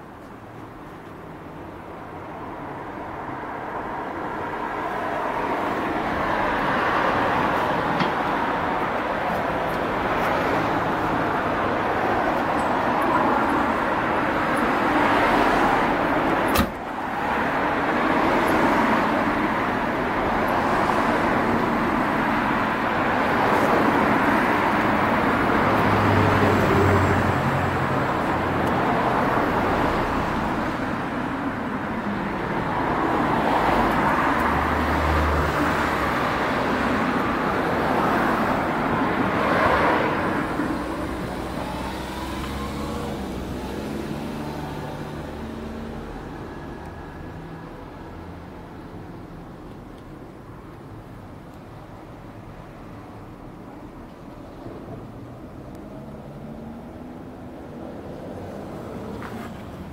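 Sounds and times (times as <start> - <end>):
vehicle rushing hum: 3.5 - 48.9.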